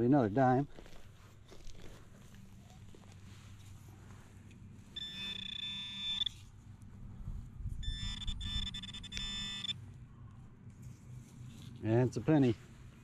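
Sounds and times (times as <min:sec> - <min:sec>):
metal detector electronic buzz: 0:04.9 - 0:06.5, 0:07.8 - 0:09.8.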